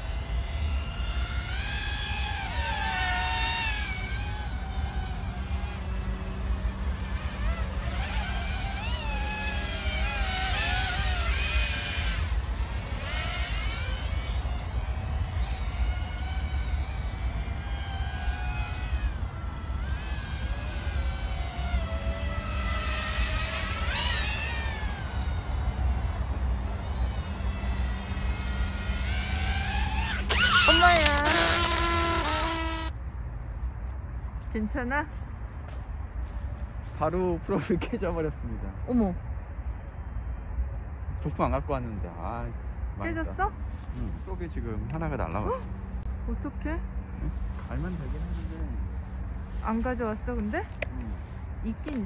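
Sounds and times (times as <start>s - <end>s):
drone propellers whining: 0.0s - 33.0s.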